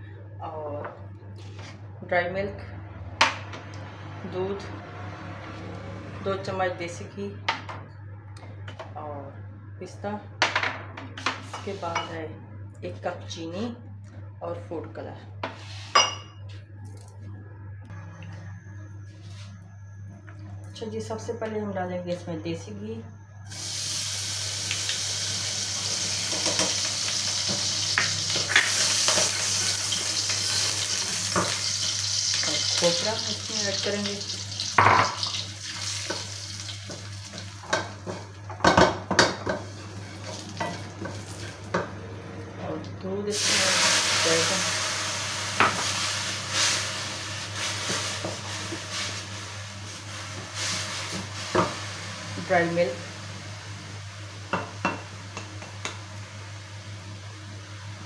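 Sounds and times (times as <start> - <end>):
ghee sizzling in a pan: 23.5 - 38.4, 43.3 - 57.0.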